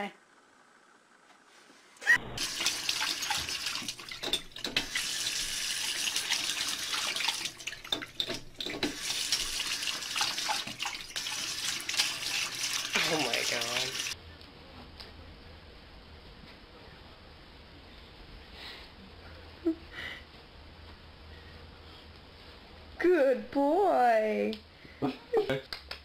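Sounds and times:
tap water splashing into basin: 6.0 - 14.2.

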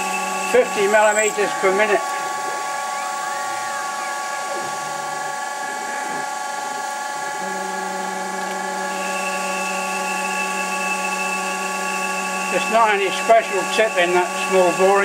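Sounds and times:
lathe mechanical whine: 0.0 - 15.0
low hum: 1.6 - 12.4.

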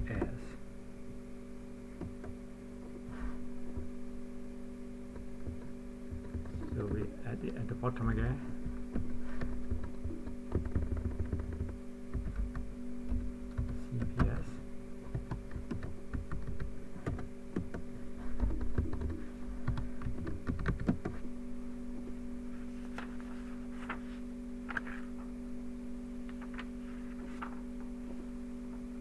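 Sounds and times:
steady electrical hum: 0.0 - 29.0
keyboard typing clicks: 9.7 - 12.7, 15.1 - 17.8, 18.4 - 21.2.

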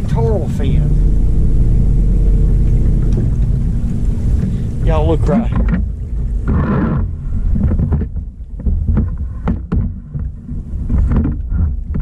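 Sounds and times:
steady low hum: 0.0 - 12.0
wind rumbling on microphone: 0.0 - 12.0
sharp clicks and knocks: 5.5 - 12.0.

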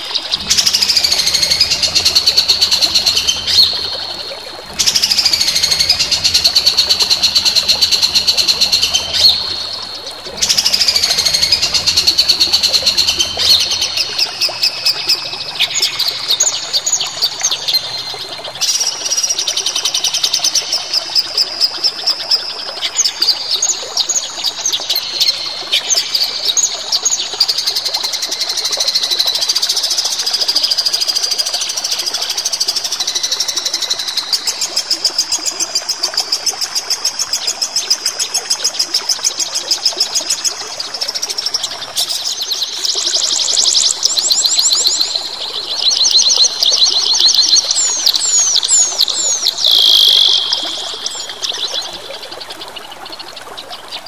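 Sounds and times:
songbird chirps and trills: 0.0 - 23.9, 40.5 - 54.0.

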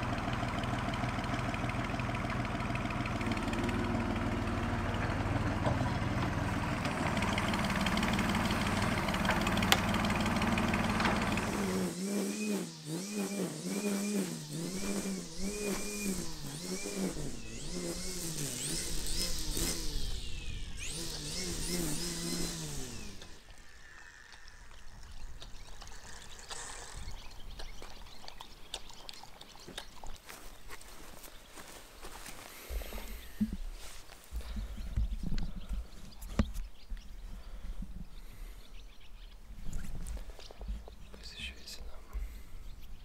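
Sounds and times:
engine running steadily: 0.0 - 27.2
tone rising and falling in pitch: 11.8 - 23.4.

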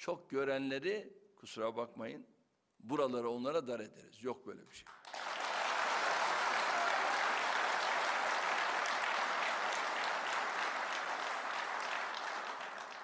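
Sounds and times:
large audience applauding: 4.9 - 13.0.

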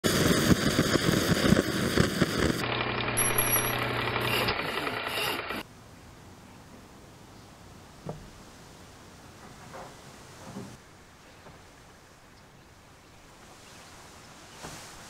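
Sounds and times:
blowlamp flame rushing and popping: 0.0 - 5.6
low hum with high tones: 2.6 - 6.9.

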